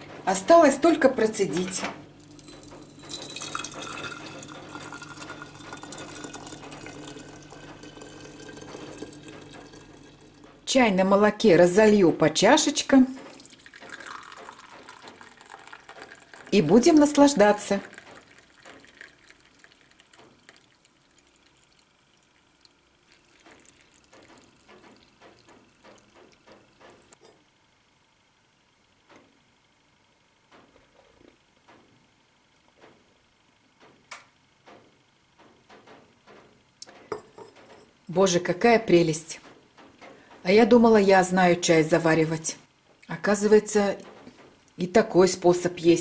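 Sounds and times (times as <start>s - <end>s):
milk tea pouring into teapot: 2.2s - 10.6s, 13.3s - 27.2s.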